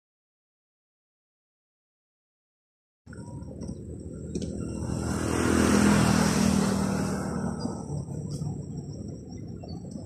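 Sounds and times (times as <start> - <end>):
vehicle passing by: 4.5 - 10.0.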